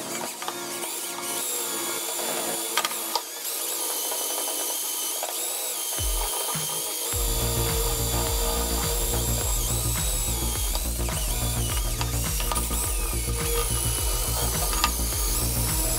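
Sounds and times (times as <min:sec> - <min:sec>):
drill motor whine: 0:00.0 - 0:15.9
background music: 0:06.0 - 0:15.9.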